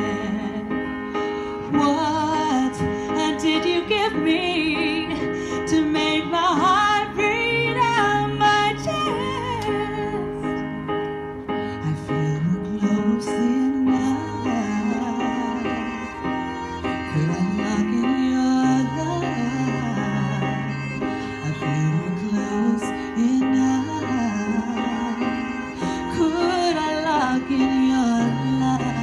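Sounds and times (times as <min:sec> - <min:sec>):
soft keyboard accompaniment: 0:00.0 - 0:29.0
woman singing a pop ballad: 0:01.7 - 0:10.6.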